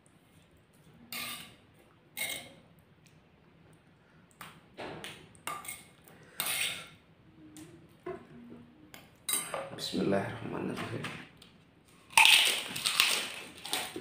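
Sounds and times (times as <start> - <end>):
metal spoon scraping stone mortar: 1.1 - 1.6, 2.2 - 2.6, 5.5 - 6.9.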